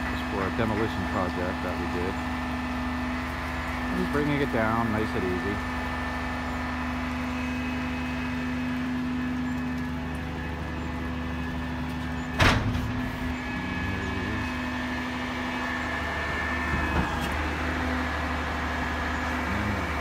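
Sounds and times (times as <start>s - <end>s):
diesel truck engine humming: 0.0s - 20.0s
hydraulic whine: 0.0s - 20.0s
loud metallic clunk: 12.3s - 13.2s.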